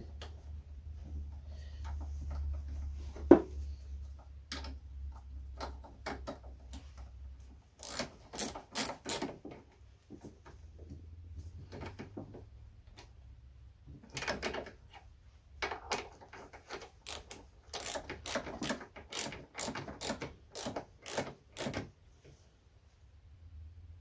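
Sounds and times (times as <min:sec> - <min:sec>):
hand ratchet clicking: 0:07.8 - 0:09.4, 0:17.0 - 0:21.9.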